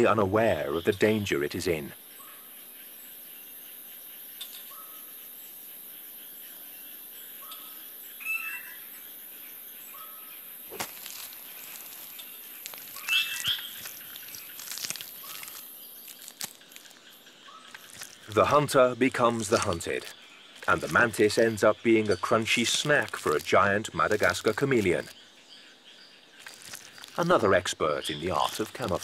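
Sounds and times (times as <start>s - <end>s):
insect hiss: 0.0s - 29.0s
bird chirps: 0.6s - 29.0s
whistled bird notes: 4.4s - 5.1s, 7.4s - 8.9s, 13.0s - 14.5s.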